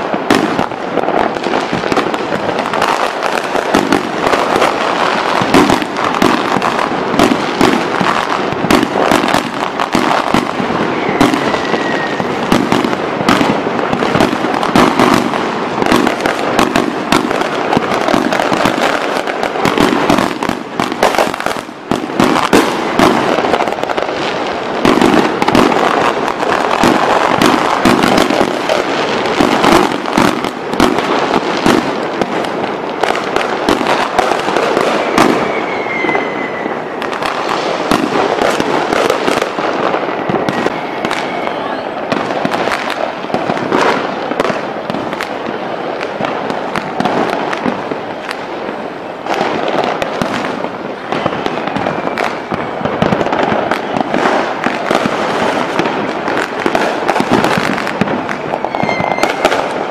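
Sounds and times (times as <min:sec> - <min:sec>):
firework crackling: 0:00.0 - 0:59.9
firework shells bursting: 0:49.4 - 0:59.9.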